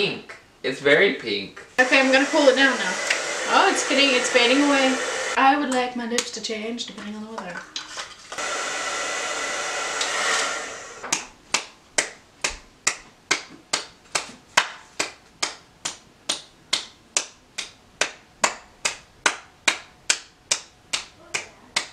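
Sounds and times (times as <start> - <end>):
hair dryer blowing: 1.8 - 5.4, 8.3 - 11.2.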